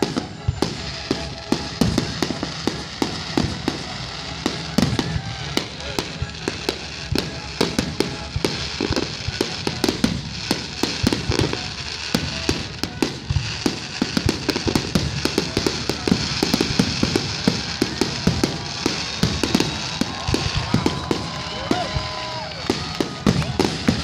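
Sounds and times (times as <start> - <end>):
firework bangs: 0.0 - 24.0.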